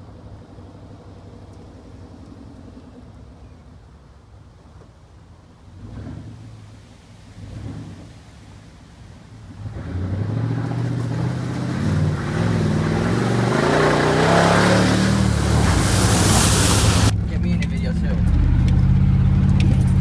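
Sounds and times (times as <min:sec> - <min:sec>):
off-road vehicle engine revving: 0:05.8 - 0:06.7, 0:07.4 - 0:08.2, 0:09.5 - 0:20.0
splashing mud and water: 0:07.2 - 0:17.1.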